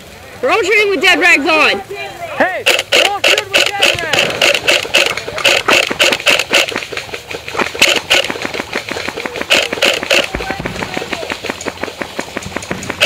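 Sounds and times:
airsoft rifles firing: 0:02.6 - 0:13.0.

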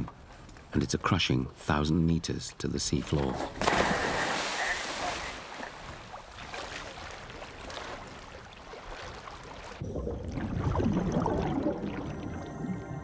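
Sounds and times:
sea water churning and fizzing: 0:03.6 - 0:12.5.

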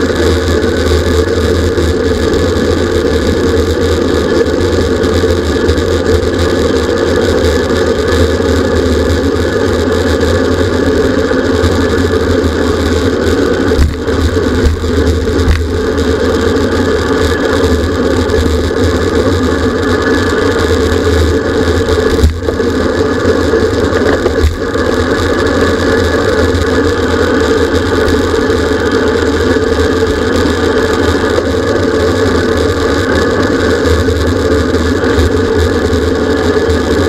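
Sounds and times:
road and tyre noise: 0:00.0 - 0:37.0
wind rushing on microphone: 0:00.0 - 0:37.0.

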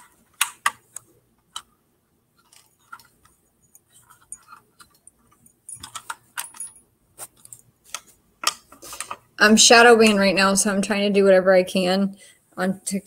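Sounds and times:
device handling clicks and taps: 0:00.0 - 0:01.7, 0:02.4 - 0:06.6, 0:07.2 - 0:09.2.

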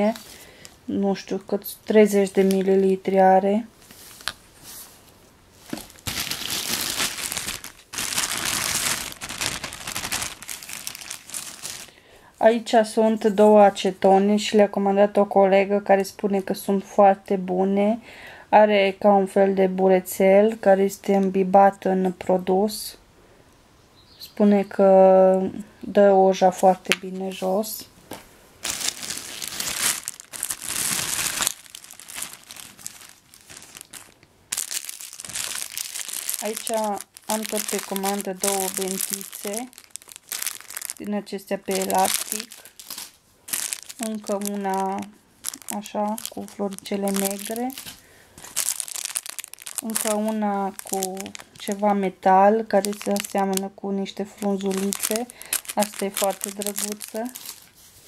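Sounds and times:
plastic bag rustling: 0:00.0 - 0:00.8, 0:02.0 - 0:03.0, 0:03.7 - 0:12.0, 0:27.0 - 0:58.0.

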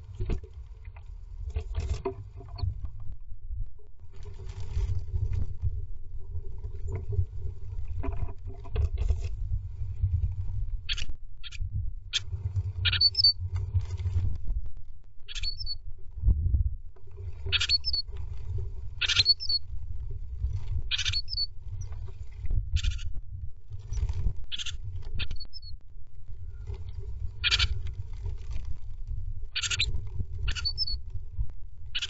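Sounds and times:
low rumble of bird shifting: 0:00.0 - 0:32.0
bird chirps: 0:12.8 - 0:13.4, 0:15.3 - 0:15.8, 0:17.5 - 0:18.0, 0:19.0 - 0:19.6, 0:20.9 - 0:21.5, 0:24.5 - 0:25.8, 0:30.5 - 0:31.0.

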